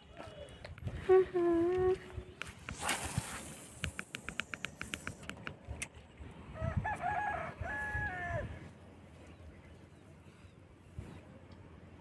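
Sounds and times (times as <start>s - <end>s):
rooster crowing: 6.6s - 8.6s.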